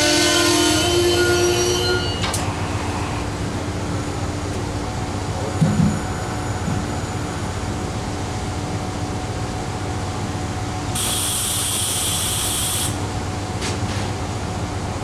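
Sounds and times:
train air-conditioning hum: 0.0 - 15.0
air hissing from train: 10.9 - 13.0.

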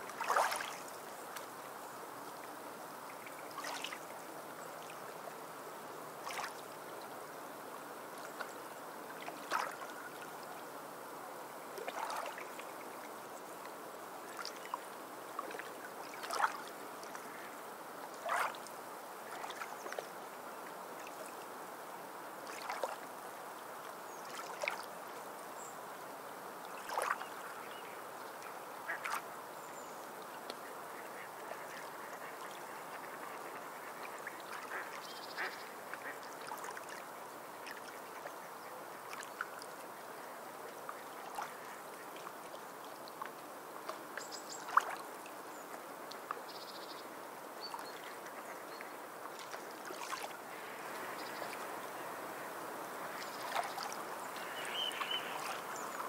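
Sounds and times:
waves lapping against rocks: 0.1 - 0.9, 15.5 - 16.7, 18.2 - 18.7
water slapping rocks: 0.2 - 0.8.

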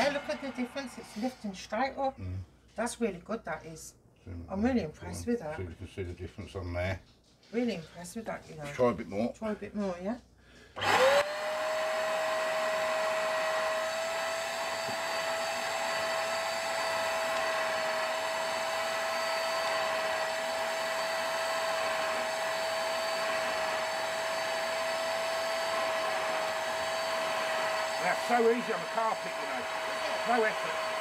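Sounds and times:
carpet cleaner motor whine: 10.8 - 31.0.

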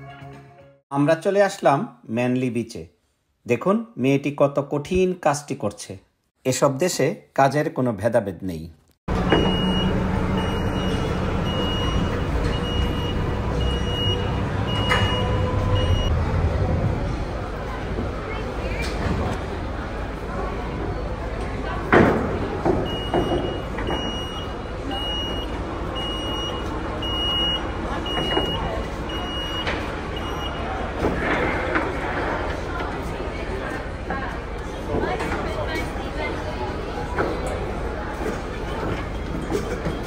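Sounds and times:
ferry engines rumbling: 9.1 - 40.0
electronic warning beeps: 9.3 - 16.1, 22.8 - 30.8.

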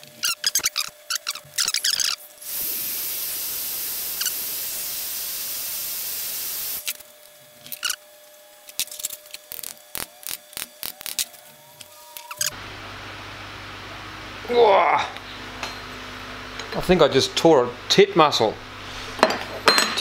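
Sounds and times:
heat gun blowing with high whine: 1.5 - 7.1.

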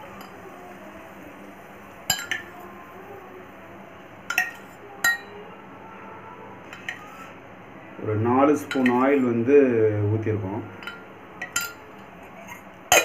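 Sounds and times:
steel spoon clinking on metal: 10.8 - 12.0.

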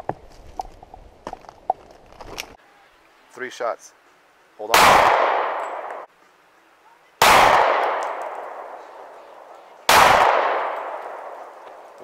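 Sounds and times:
pistol shots with echo: 4.7 - 6.1, 7.2 - 9.1, 9.9 - 11.6.

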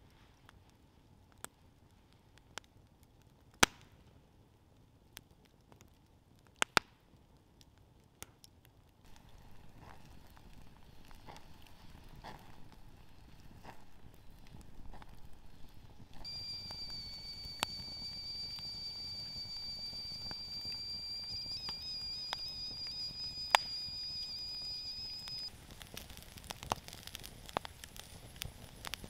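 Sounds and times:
campfire crackling pops: 0.0 - 4.2, 4.8 - 29.0
steam whistling from wood: 16.2 - 25.5.

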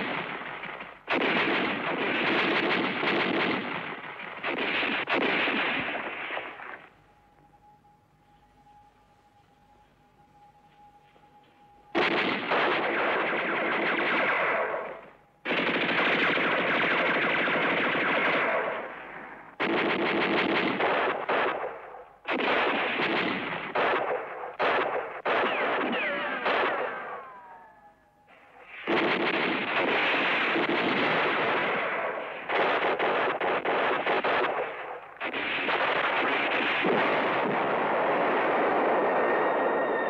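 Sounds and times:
automatic gunfire: 0.0 - 6.8, 12.0 - 27.8, 28.6 - 39.6
falling whines: 6.3 - 15.4, 25.5 - 28.8, 37.7 - 40.0.

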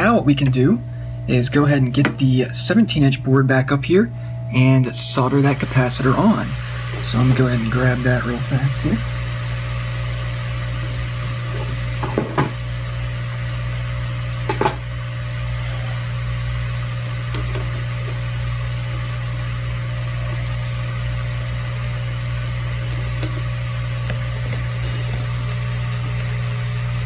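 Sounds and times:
low machine hum: 0.0 - 27.0
circuit board knocking on bench: 14.5 - 14.8.

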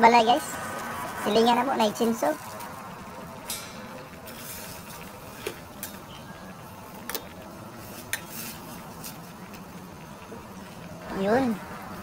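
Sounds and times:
broth boiling: 0.0 - 12.0
spatula stirring noodles in pot: 4.2 - 6.0, 7.7 - 10.2.

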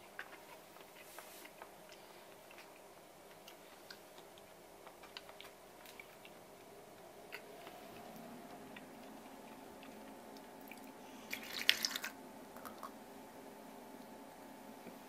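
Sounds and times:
faint steady hum: 0.0 - 15.0
liquid pouring and dripping: 10.4 - 12.9.

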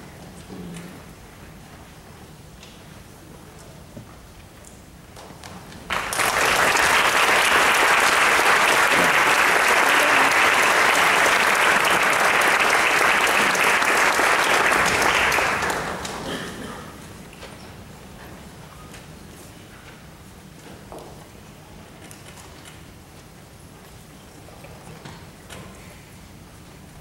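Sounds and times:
audience applauding: 5.9 - 16.6.

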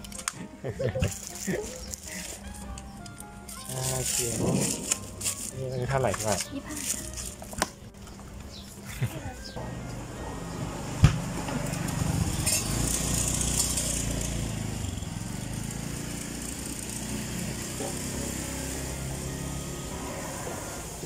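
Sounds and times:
small motor running: 11.8 - 21.0.

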